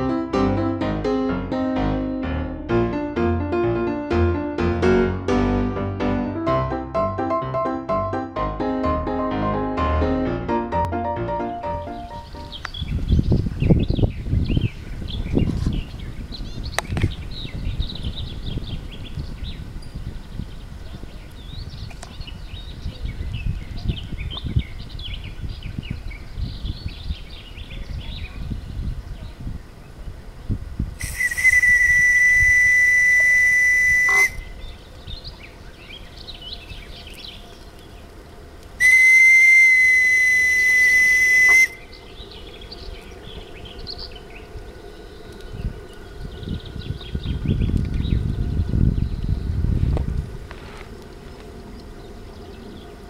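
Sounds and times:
birds chirping: 11.4s - 53.0s
wind rumble on microphone: 11.6s - 53.0s
steam whistle blasts: 31.0s - 34.5s, 38.8s - 41.9s.

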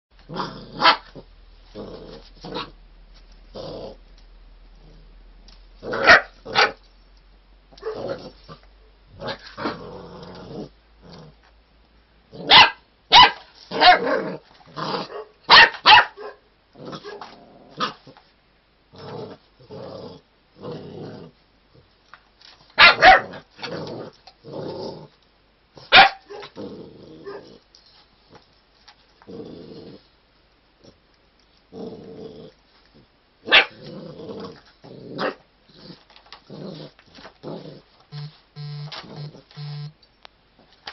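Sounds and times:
puppy growling: 0.2s - 6.8s, 7.7s - 11.5s, 16.7s - 18.2s, 18.9s - 21.8s, 23.1s - 25.2s, 25.8s - 27.7s, 29.2s - 30.2s, 31.7s - 39.6s
puppy barking: 0.8s - 1.1s, 5.9s - 6.8s, 7.8s - 8.2s, 12.5s - 14.1s, 15.0s - 16.4s, 22.8s - 23.4s, 25.9s - 26.6s, 33.5s - 33.8s.

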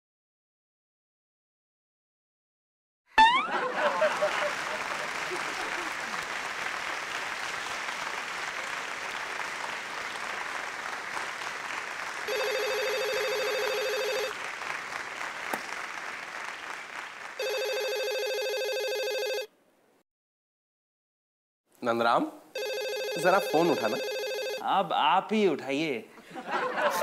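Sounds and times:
audience applause: 3.4s - 17.9s
desk telephone ringing: 12.3s - 14.3s, 17.4s - 19.5s, 22.6s - 24.6s.

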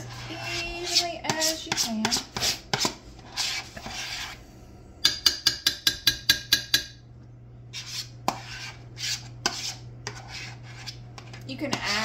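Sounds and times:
utensil scraping a mixing bowl: 0.0s - 4.5s, 7.7s - 12.0s.

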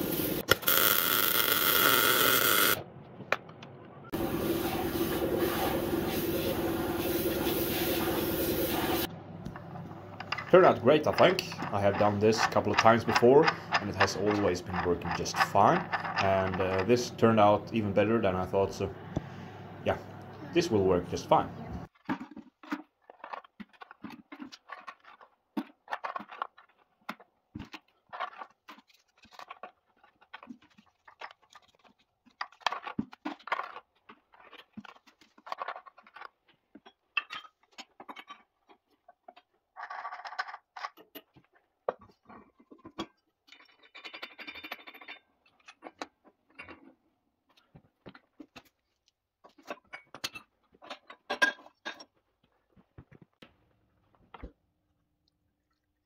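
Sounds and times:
hand brush scrubbing metal: 4.2s - 9.1s.

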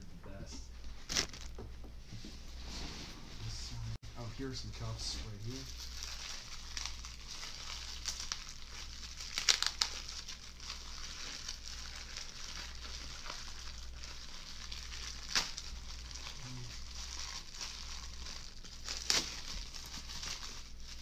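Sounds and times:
bubble wrap crinkling: 0.8s - 1.6s, 4.2s - 21.0s
bubble wrap snapping: 1.0s - 1.6s, 5.4s - 21.0s.

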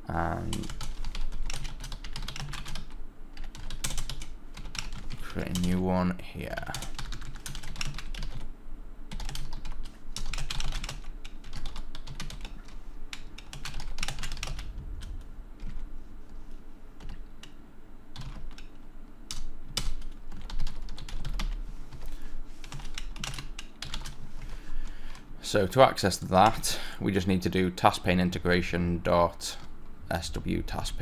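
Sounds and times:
faint low steady hum: 0.0s - 31.0s
computer keyboard typing: 0.4s - 5.8s, 6.6s - 8.5s, 9.1s - 15.9s, 17.0s - 17.6s, 18.2s - 24.2s.

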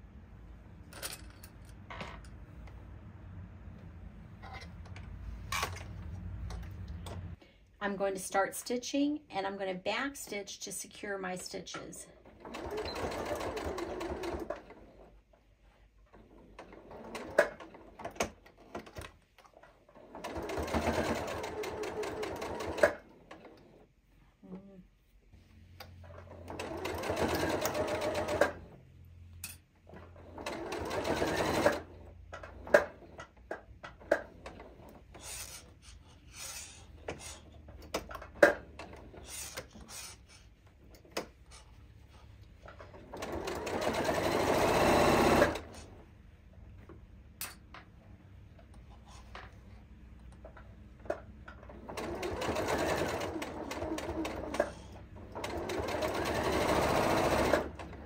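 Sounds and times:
sewing machine stitching: 12.2s - 15.2s, 16.1s - 19.1s, 19.8s - 23.8s, 26.0s - 28.8s, 29.9s - 35.7s, 42.6s - 46.0s, 50.5s - 58.0s.

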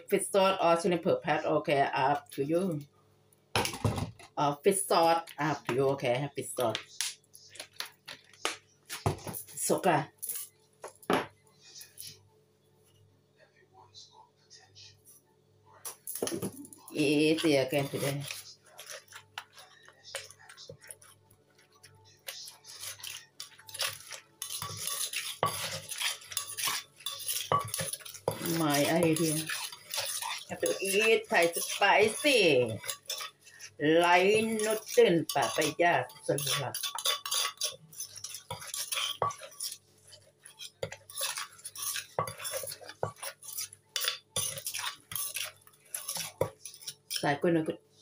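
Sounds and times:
metal spoon scraping: 7.4s - 10.6s, 11.6s - 12.2s, 15.9s - 48.0s.

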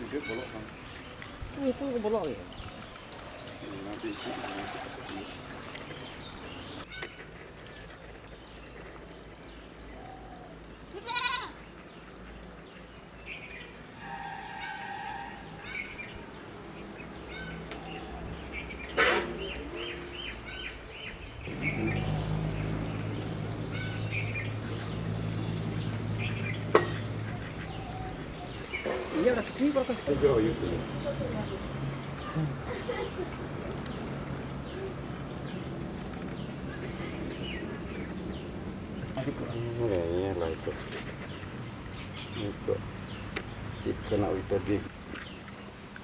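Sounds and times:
animal calls: 21.5s - 24.9s, 25.8s - 38.3s.

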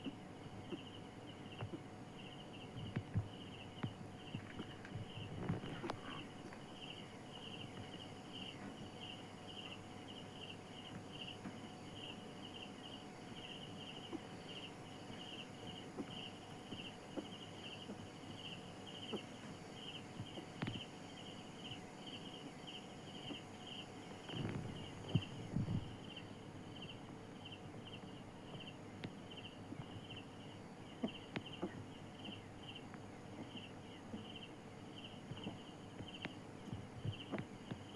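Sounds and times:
insect chirping: 0.0s - 37.9s
rustling and bumps: 24.2s - 26.0s.

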